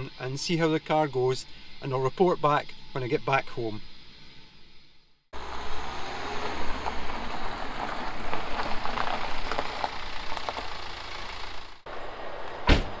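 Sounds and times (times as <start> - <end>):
diesel car engine running: 5.4 - 11.8
tyres crunching on gravel: 5.4 - 13.0.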